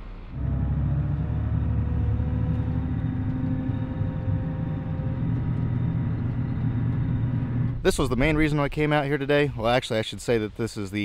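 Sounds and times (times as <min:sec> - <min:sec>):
wheel loader diesel engine: 0:00.0 - 0:08.4.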